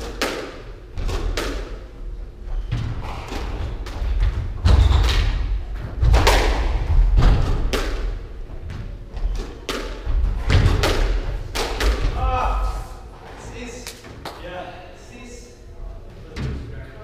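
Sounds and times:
squash ball hits: 0:00.0 - 0:01.8, 0:02.8 - 0:08.2, 0:09.3 - 0:12.5.

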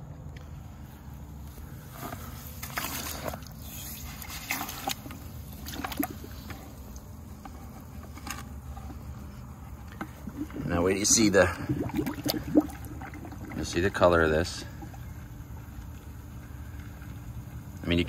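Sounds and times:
water sloshing and splashing: 0:01.9 - 0:15.7
hose running water into bucket: 0:02.5 - 0:15.7.

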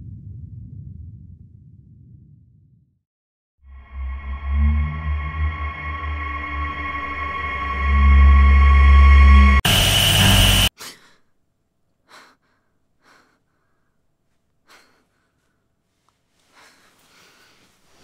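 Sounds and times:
droning horror chord: 0:03.7 - 0:10.7
woman breathing and sighing: 0:16.3 - 0:18.0.

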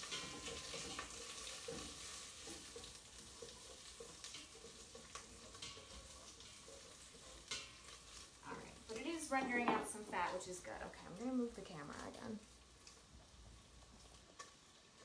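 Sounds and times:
utensil stirring and scraping: 0:00.0 - 0:08.5
bacon sizzling in a pot: 0:00.0 - 0:15.0.

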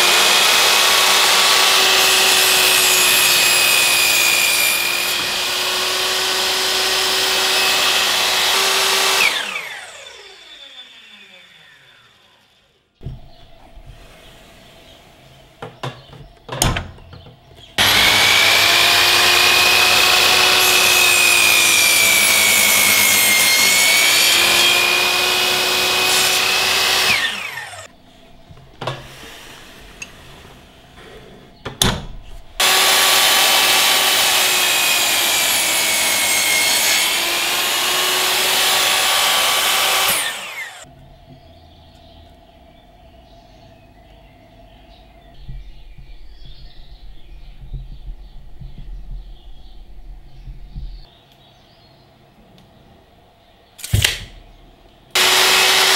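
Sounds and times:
miter saw motor whining: 0:00.0 - 0:12.8, 0:17.8 - 0:27.9, 0:32.6 - 0:40.9, 0:55.1 - 0:55.9.

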